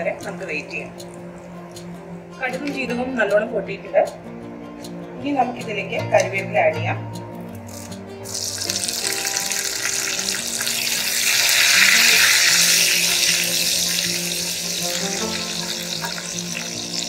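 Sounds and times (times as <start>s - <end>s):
soft background music: 0.0s - 17.0s
hot oil sizzling and spluttering: 7.6s - 17.0s.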